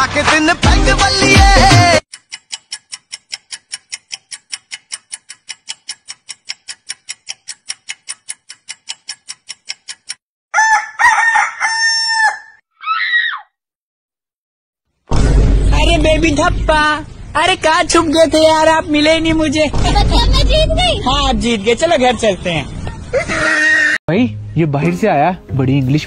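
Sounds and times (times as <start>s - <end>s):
clock ticking: 2.1s - 10.2s
rooster crowing: 10.5s - 13.0s.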